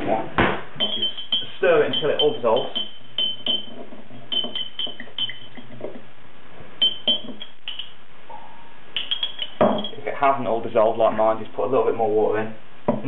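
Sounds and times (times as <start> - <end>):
metal spoon clinking in glass jar: 0.8 - 5.8, 6.8 - 8.0, 9.0 - 10.0.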